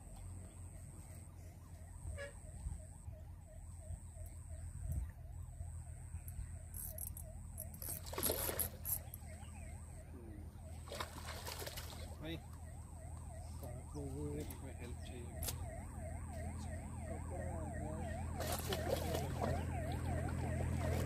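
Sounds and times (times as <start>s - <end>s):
warbling siren-like tone: 0.0s - 21.0s
fish thrashing and splashing: 7.6s - 9.3s, 10.7s - 12.2s, 18.3s - 21.0s.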